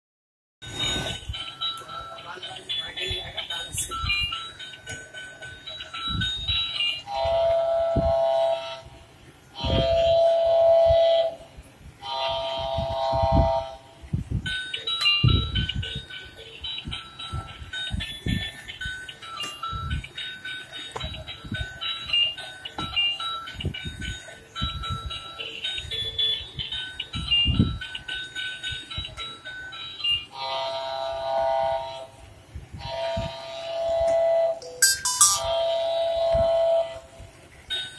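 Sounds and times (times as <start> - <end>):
tinny electronic beeping notes: 34.6 - 35.5.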